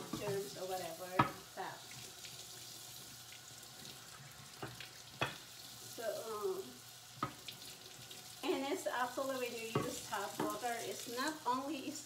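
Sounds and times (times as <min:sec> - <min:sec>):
faucet water splashing on board: 0:00.2 - 0:05.8.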